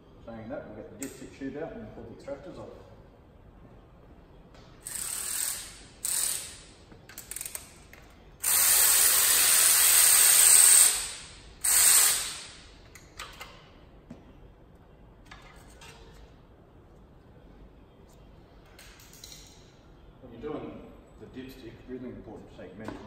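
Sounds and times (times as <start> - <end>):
pneumatic air ratchet bursts: 4.8 - 7.8, 8.4 - 12.8.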